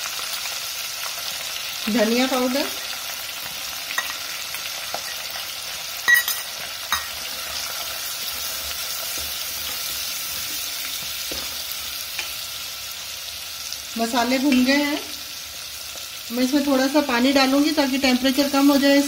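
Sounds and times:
spices sizzling in hot oil: 0:00.0 - 0:19.0
spoon knocking against pot: 0:06.1 - 0:07.2.

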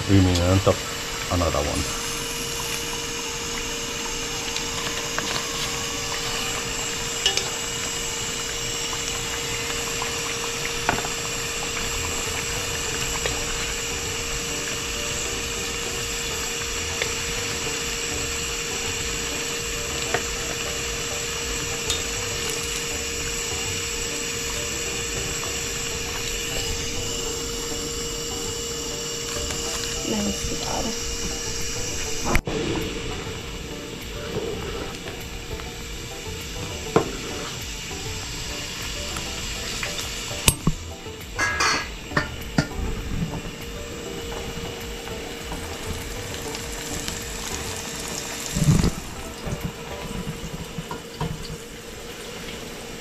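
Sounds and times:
fish sizzling in oil: 0:00.0 - 0:53.0
steady hum: 0:00.0 - 0:53.0
utensil clinking on pan: 0:41.4 - 0:42.7.

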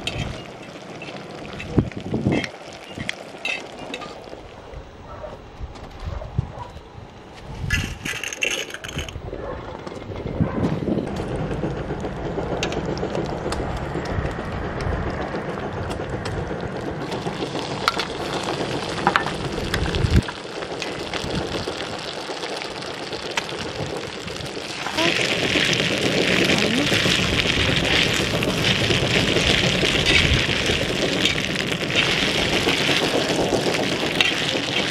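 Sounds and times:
bacon sizzling: 0:00.0 - 0:04.5, 0:17.0 - 0:34.9
dry spaghetti rattling in a pot: 0:07.7 - 0:09.2, 0:23.0 - 0:34.9
low rumble: 0:09.1 - 0:20.2.

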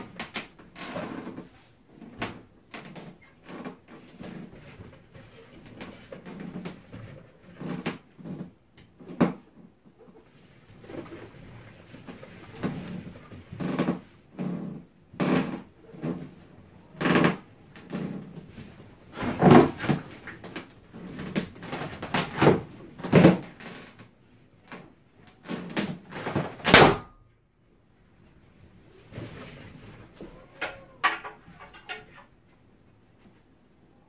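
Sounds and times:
balloons rubbing and squeaking: 0:10.4 - 0:24.0.

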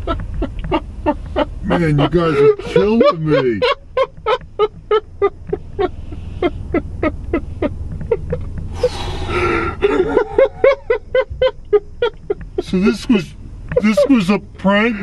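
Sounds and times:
low rumble: 0:00.0 - 0:15.0
man laughing hard: 0:01.6 - 0:05.9, 0:06.7 - 0:12.8.

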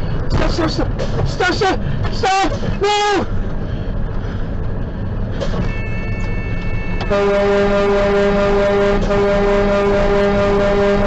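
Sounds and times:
moving truck rumble: 0:00.0 - 0:11.0
truck air horn blast: 0:07.1 - 0:11.0.

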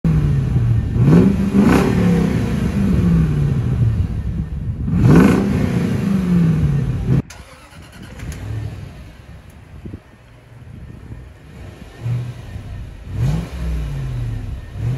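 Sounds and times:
car engine revving: 0:00.1 - 0:10.1, 0:10.7 - 0:14.9.

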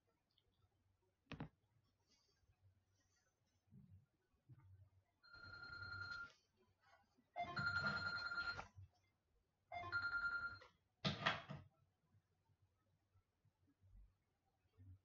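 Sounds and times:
telephone ringing: 0:05.2 - 0:06.4, 0:07.4 - 0:08.6, 0:09.7 - 0:10.7.

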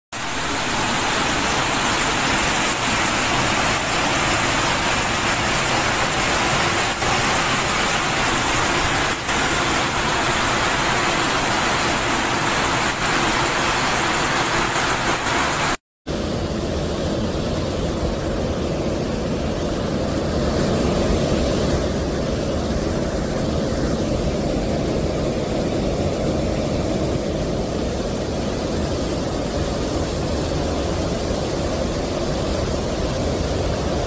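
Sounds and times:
floodwater rushing down a street: 0:00.2 - 0:15.8, 0:24.2 - 0:34.0.

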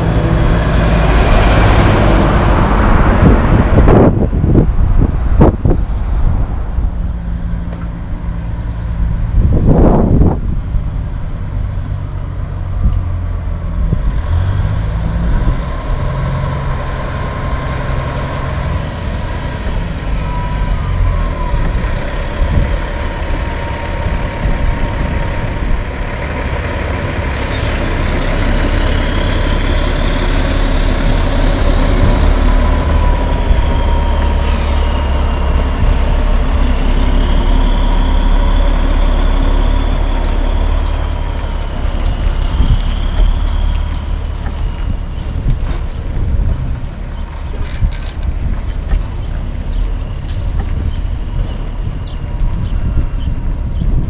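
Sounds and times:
diesel truck engine rumbling: 0:00.0 - 0:54.0
air brake hisses: 0:34.2 - 0:35.1.

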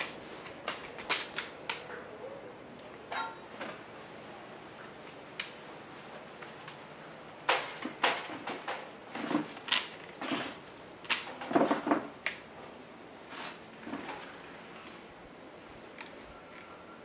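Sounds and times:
objects clattering and knocking: 0:07.4 - 0:12.2, 0:13.3 - 0:14.5.

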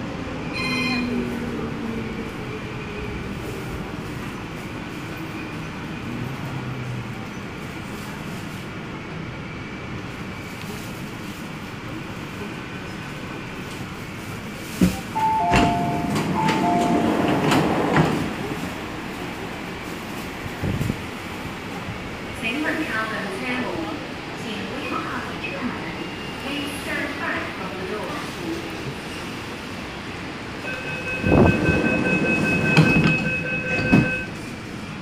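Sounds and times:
train rumbling: 0:00.0 - 0:35.0
doors sliding open with clunking: 0:14.9 - 0:18.9, 0:30.7 - 0:34.3
two-note door chime: 0:15.2 - 0:17.6.

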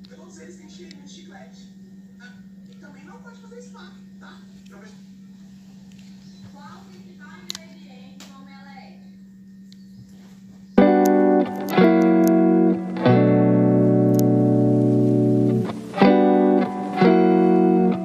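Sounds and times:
plucked guitar music: 0:10.8 - 0:18.0.

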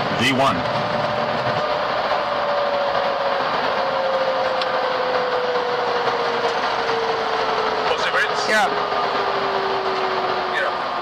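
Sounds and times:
airflow and engine rush: 0:00.0 - 0:11.0.

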